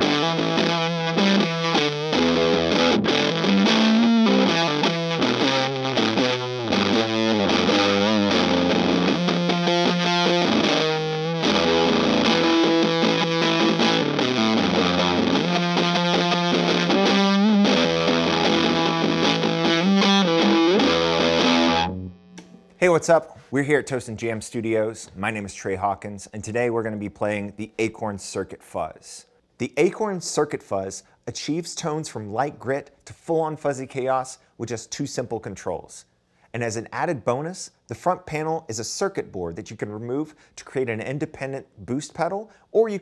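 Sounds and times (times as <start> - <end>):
distorted electric guitar riffs: 0.0 - 22.8.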